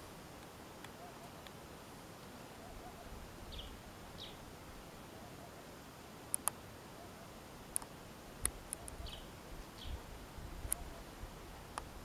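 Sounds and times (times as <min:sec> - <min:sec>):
sharp clicks: 0:06.3 - 0:06.6, 0:07.7 - 0:09.0.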